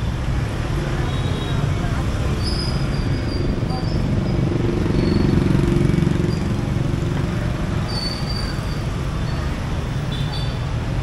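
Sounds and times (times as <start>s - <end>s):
street traffic hum: 0.0s - 11.0s
motorbike engine passing: 4.4s - 7.9s.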